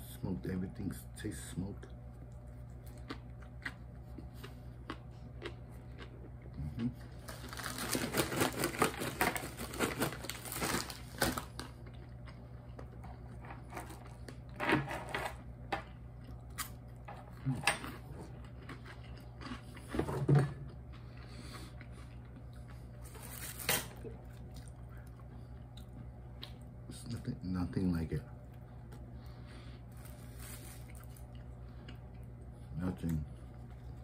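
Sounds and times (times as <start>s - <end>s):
faint steady hum: 0.0s - 34.0s
crunching food: 1.8s - 14.6s, 15.4s - 27.2s, 28.3s - 34.0s
paper wrapper crinkling: 7.2s - 11.7s, 23.1s - 24.0s, 29.9s - 31.3s.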